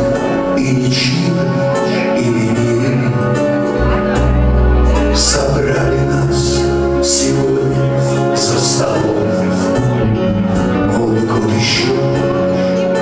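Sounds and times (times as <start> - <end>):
live band playing: 0.0 - 13.0
man singing: 0.0 - 13.0.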